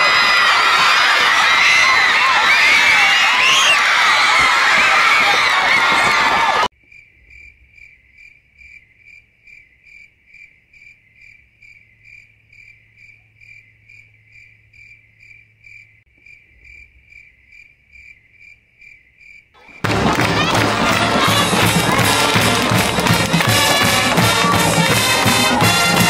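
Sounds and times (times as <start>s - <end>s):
cricket chirping: 6.8s - 19.8s.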